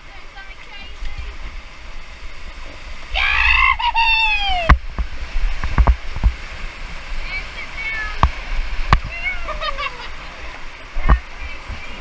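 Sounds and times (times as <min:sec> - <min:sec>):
river rapids rushing: 0:00.0 - 0:12.0
person whooping: 0:03.2 - 0:04.7
short dull thumps: 0:04.6 - 0:06.4.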